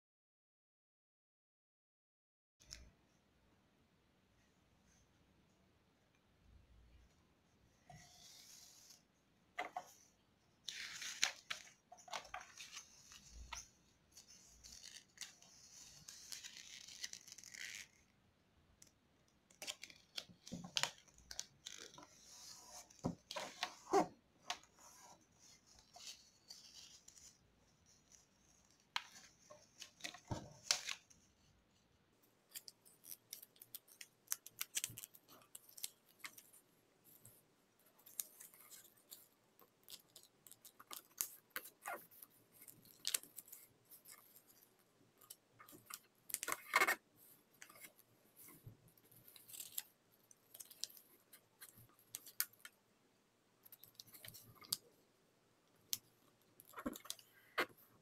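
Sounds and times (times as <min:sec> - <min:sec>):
paper being folded and creased: 0:07.9 - 0:18.1, 0:19.5 - 0:31.8, 0:32.4 - 0:52.8.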